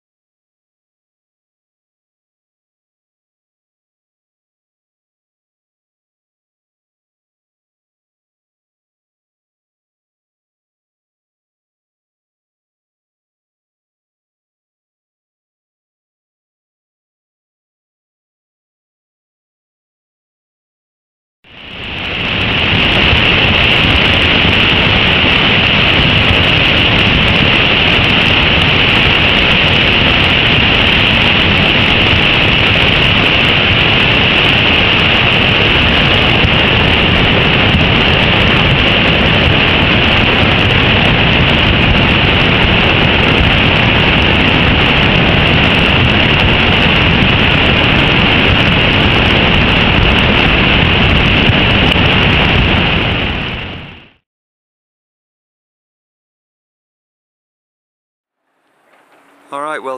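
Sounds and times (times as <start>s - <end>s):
floodwater rushing loudly: 21.5s - 53.8s.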